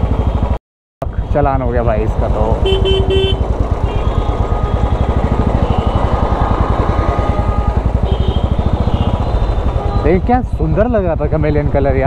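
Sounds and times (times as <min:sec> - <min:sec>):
faint traffic horns: 0:02.6 - 0:10.3.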